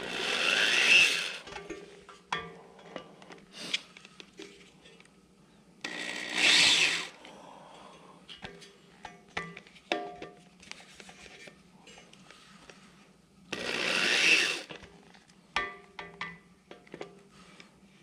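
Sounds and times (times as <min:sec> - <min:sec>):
power drill spinning: 0:00.0 - 0:01.5, 0:05.8 - 0:07.2, 0:13.5 - 0:14.7.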